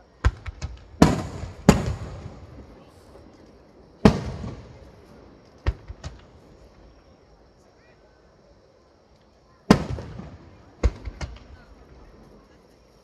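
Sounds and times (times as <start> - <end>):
firework cracks: 0.0 - 7.4, 9.1 - 12.8
firework shells booming: 0.2 - 6.8, 9.7 - 12.4.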